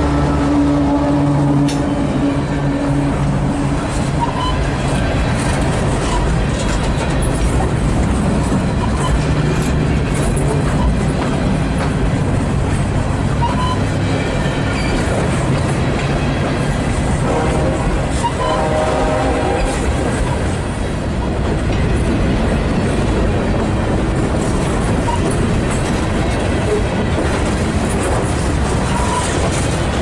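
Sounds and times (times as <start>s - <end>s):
train wheels on rails: 0.0s - 30.0s.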